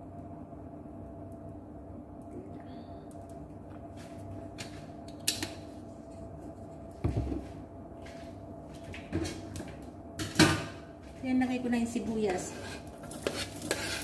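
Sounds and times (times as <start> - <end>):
faint steady hum: 0.0 - 14.0
kitchen knocks and clatters: 7.0 - 7.6, 10.2 - 10.9.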